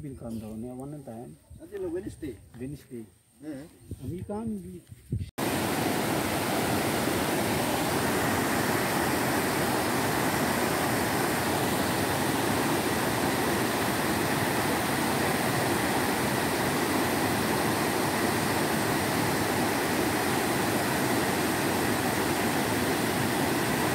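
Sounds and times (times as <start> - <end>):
waterfall rushing over rocks: 5.4 - 23.9.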